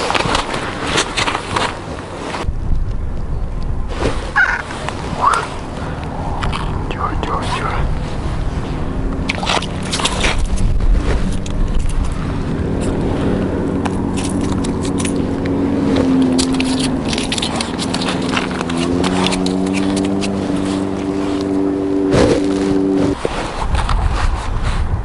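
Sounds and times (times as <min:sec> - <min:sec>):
engine running: 0:00.0 - 0:23.6
sharp clicks and scrapes: 0:09.2 - 0:12.2, 0:13.8 - 0:21.5.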